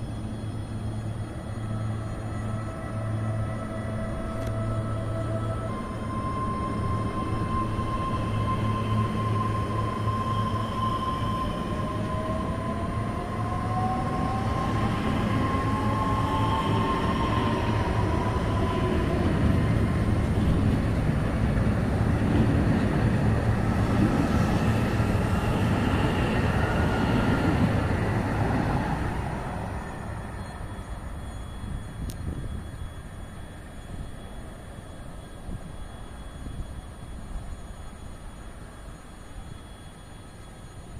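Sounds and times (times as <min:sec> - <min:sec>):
electric train rumbling past: 0:00.0 - 0:40.9
rising whine: 0:00.0 - 0:40.9
train whine: 0:00.0 - 0:40.9.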